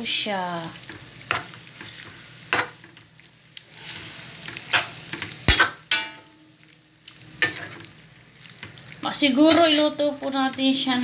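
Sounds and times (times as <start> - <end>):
faint sizzle: 0.0 - 11.0
metal spatula scraping wok: 1.3 - 2.8, 3.7 - 6.3, 7.4 - 7.8.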